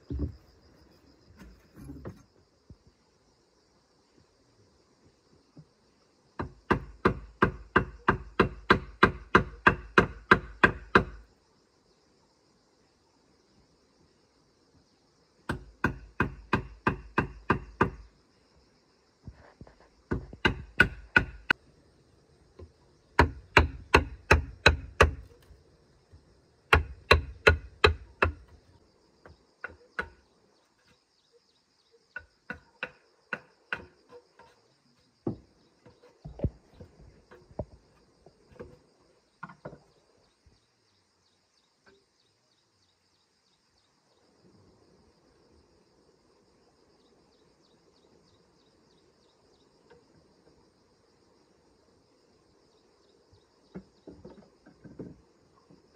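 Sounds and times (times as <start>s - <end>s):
high insect drone: 0.0s - 55.9s
machete chopping wooden plank: 6.4s - 11.2s, 20.1s - 21.6s, 23.2s - 25.3s, 26.7s - 28.5s, 32.5s - 34.2s.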